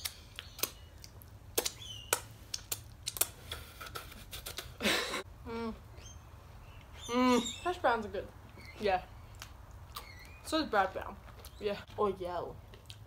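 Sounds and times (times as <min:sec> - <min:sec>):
lip smacking and chewing: 0:00.0 - 0:04.8, 0:08.4 - 0:10.4, 0:12.7 - 0:13.0.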